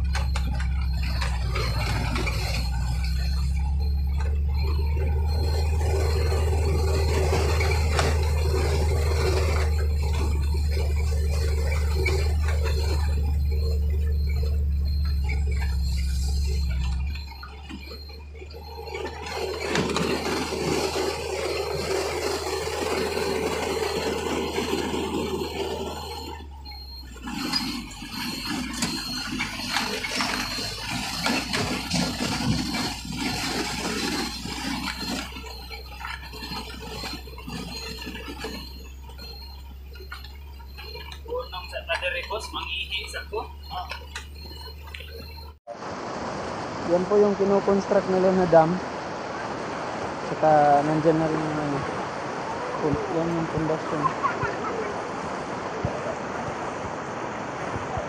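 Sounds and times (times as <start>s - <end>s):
rattling and scraping: 0.0s - 45.6s
truck engine drone: 0.0s - 58.0s.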